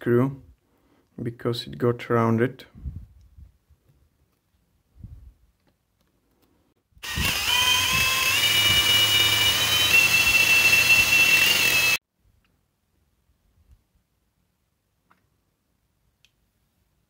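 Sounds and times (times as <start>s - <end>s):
cordless drill whining: 7.0s - 12.0s.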